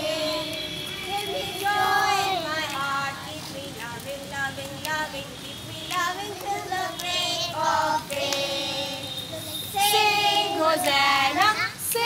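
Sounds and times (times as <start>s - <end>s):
young children singing: 0.0s - 3.3s, 6.0s - 12.0s.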